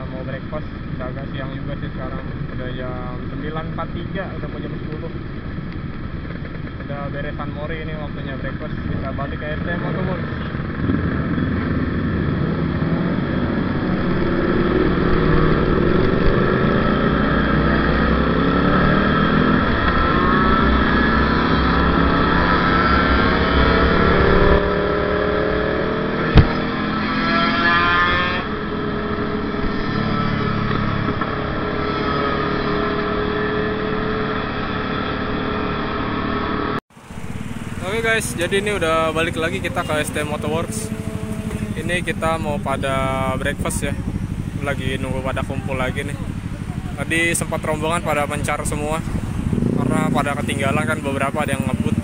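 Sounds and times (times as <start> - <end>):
two-stroke motorcycles revving: 0.0 - 52.0
wind noise: 8.7 - 25.4, 37.0 - 52.0.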